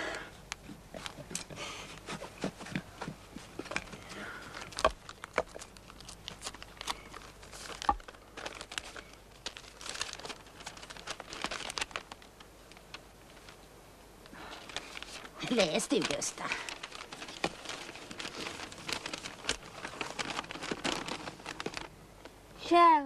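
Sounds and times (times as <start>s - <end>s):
paper rustling and crinkling: 1.0s - 13.6s, 14.4s - 21.9s
sharp paper crackles: 3.4s - 13.6s, 14.3s - 22.0s.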